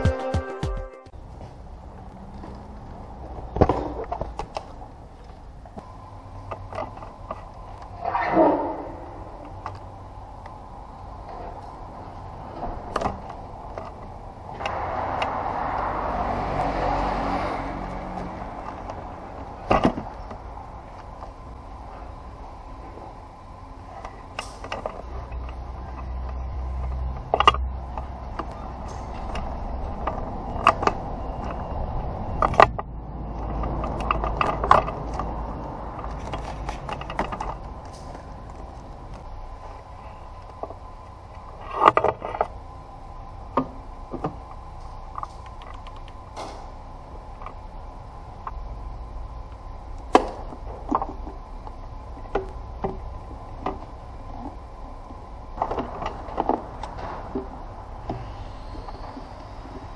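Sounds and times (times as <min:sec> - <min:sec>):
clicks and rattles of plastic parts: 0:24.0 - 0:31.6, 0:32.4 - 0:39.3.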